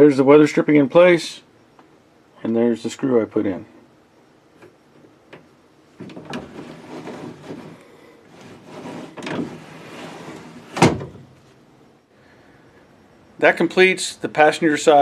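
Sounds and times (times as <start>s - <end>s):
window glass scraping in channel: 6.1s - 11.3s.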